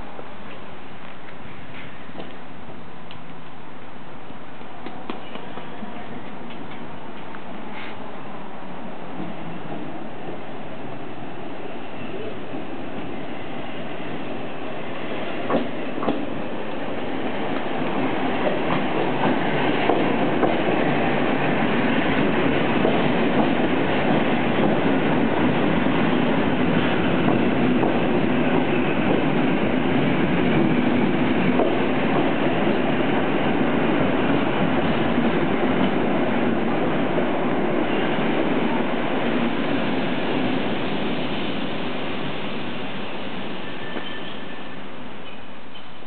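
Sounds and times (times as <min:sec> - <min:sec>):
train wheels clicking over rail joints: 0:15.4 - 0:16.4, 0:17.5 - 0:21.0, 0:43.6 - 0:44.6.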